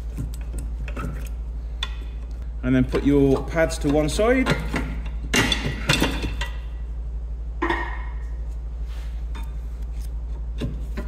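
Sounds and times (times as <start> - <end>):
metal clicks and knocks: 0.1 - 6.7.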